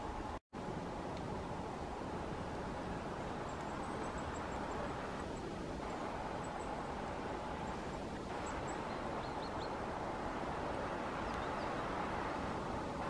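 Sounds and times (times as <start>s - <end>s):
faint steady hum: 0.0s - 13.0s
rushing outdoor background noise: 0.0s - 13.0s
small birds calling: 2.8s - 12.6s.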